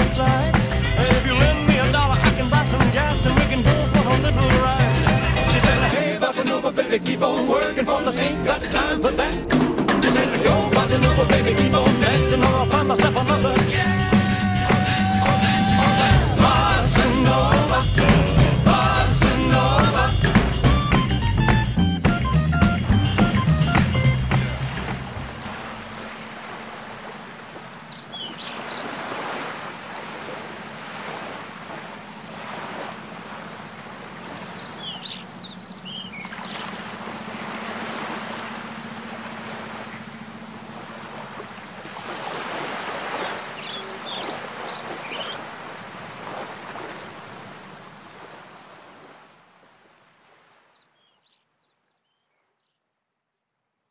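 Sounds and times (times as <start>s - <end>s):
sea water lapping on rocks: 22.8s - 50.7s
bird chirping: 27.6s - 28.9s, 34.2s - 36.7s, 43.2s - 45.4s
steady low hum: 29.8s - 42.2s.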